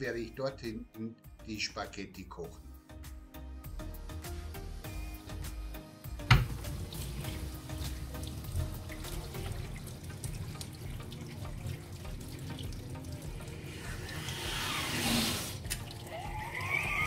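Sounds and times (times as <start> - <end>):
water splashing into steel sink: 6.2 - 17.0
water pouring onto metal lid: 6.4 - 17.0.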